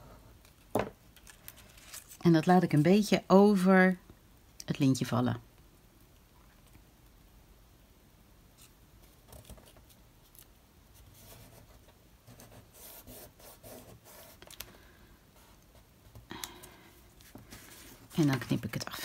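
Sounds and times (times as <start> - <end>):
paper rustling and rubbing: 1.2 - 2.8
soft scratches: 9.5 - 14.5.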